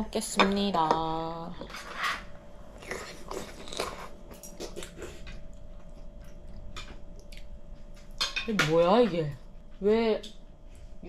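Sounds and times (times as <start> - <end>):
faint steady hum: 0.0 - 11.0
person chewing crunchy food: 2.7 - 8.2.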